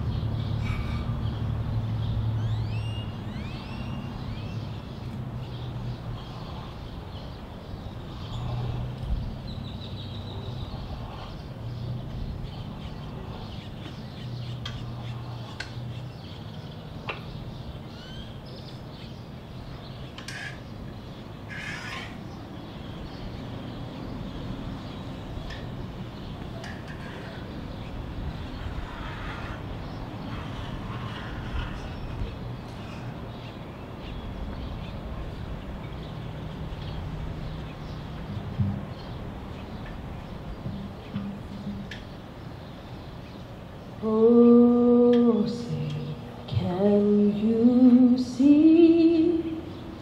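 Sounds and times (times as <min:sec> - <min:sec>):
birds chirping: 0:00.0 - 0:50.0
rising whistled bird calls: 0:02.4 - 0:04.7.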